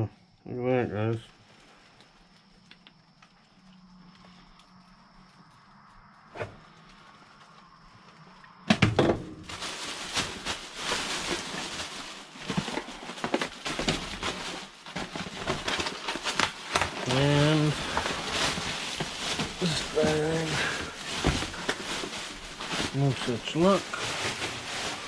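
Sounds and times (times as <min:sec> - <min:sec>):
rubbish rustling and crinkling: 0:09.0 - 0:25.0.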